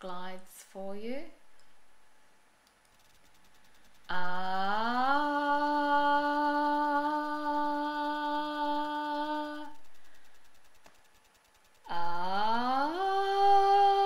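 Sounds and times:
woman's rising sustained voice tone: 4.1 - 10.0, 11.9 - 14.0.

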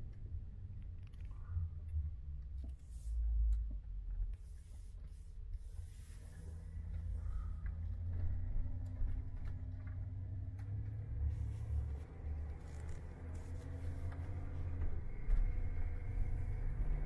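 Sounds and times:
van engine rumble: 5.9 - 17.0.

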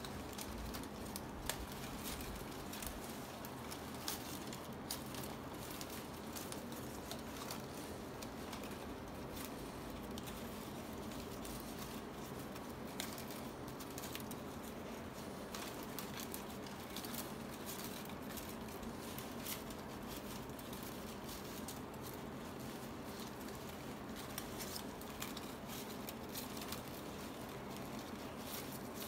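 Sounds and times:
palm leaf strips rustling: 0.0 - 29.0.

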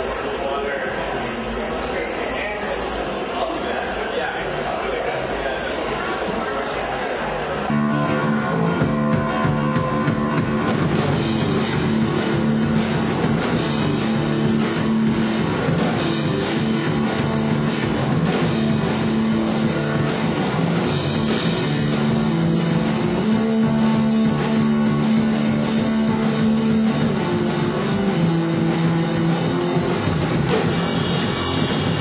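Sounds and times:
live rock band playing: 7.6 - 32.0.

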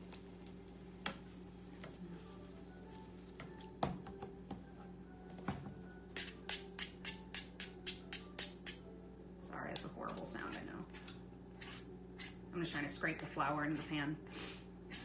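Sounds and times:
utensil scraping pan: 10.3 - 12.4.

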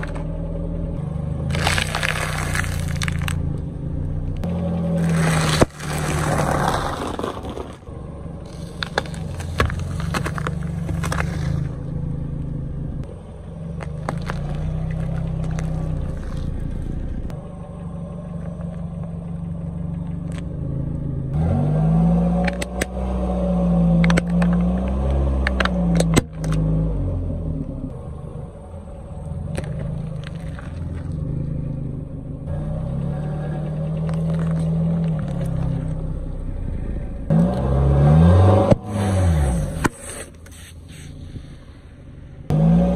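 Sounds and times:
car engine running slowly: 0.0 - 38.0
objects crunching under tyre: 1.3 - 3.7, 4.4 - 12.2, 13.6 - 17.4, 29.2 - 32.0, 32.8 - 36.1.

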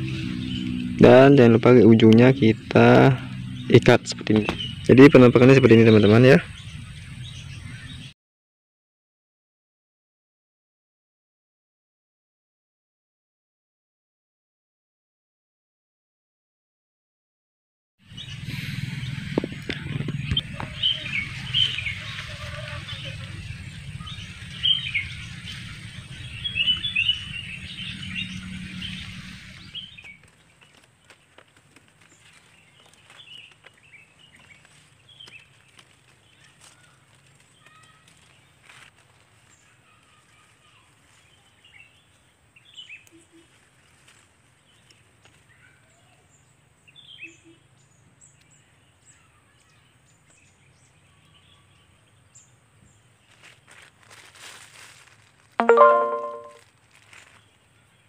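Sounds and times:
small birds chirping: 0.0 - 8.1, 18.1 - 53.9.

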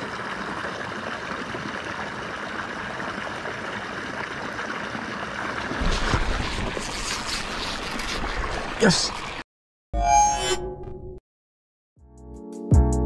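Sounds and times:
water pouring into a pond: 0.0 - 9.4.

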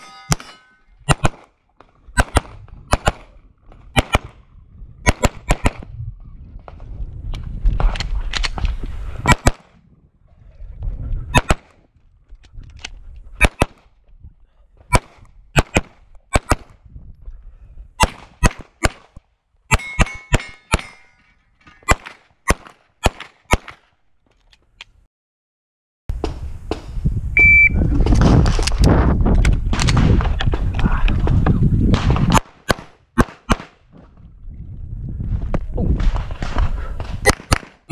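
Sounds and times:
pistol shots in quick pairs: 0.3 - 1.5, 2.2 - 3.3, 4.0 - 4.4, 5.0 - 5.9, 9.2 - 9.7, 11.4 - 11.7, 13.4 - 13.8, 14.9 - 16.7, 18.0 - 21.0, 21.8 - 23.8, 31.9 - 33.8, 37.2 - 37.9
short electronic beep: 27.4 - 27.8.

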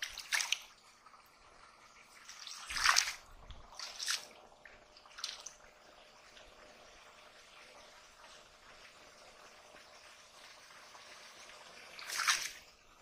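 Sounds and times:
hands splashing in muddy water: 0.0 - 0.7, 2.3 - 3.2, 3.8 - 4.3, 12.0 - 12.6.

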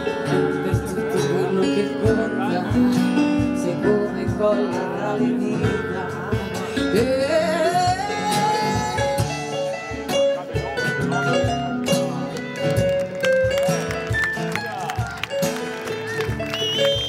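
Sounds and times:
drums: 0.0 - 17.0
woman singing: 0.7 - 9.6.

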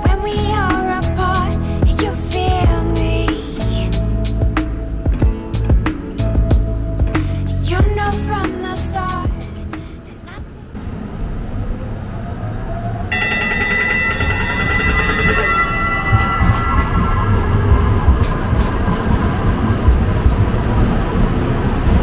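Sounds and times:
train rumble: 0.0 - 22.0
bell-like chime: 13.1 - 18.0.

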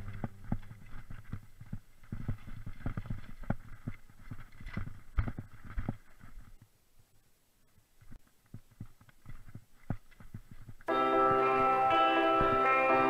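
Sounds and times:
mountain bike rattling over rocks: 0.0 - 6.7, 8.5 - 10.9.

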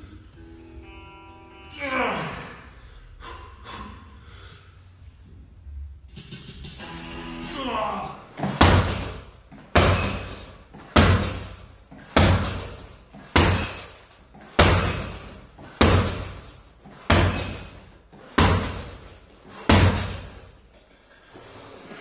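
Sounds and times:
heavy thuds on punching bag: 8.4 - 13.9, 14.6 - 17.8, 18.4 - 19.0, 19.6 - 20.4.

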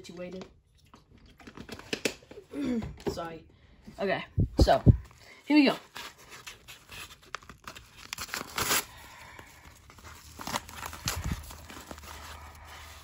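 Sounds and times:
paper mailer tearing: 6.0 - 9.2, 10.0 - 13.0.

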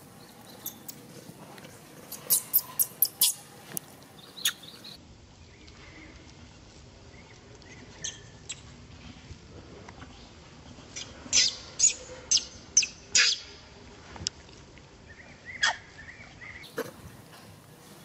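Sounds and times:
baby monkey squealing: 2.1 - 3.4.

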